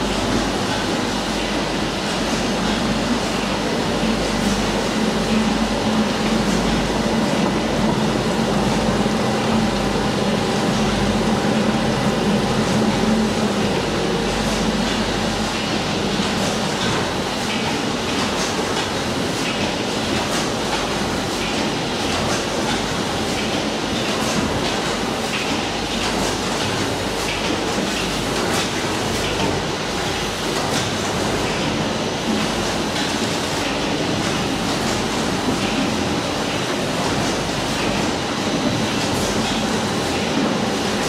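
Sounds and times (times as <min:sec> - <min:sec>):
machine clatter: 0:13.3 - 0:41.0.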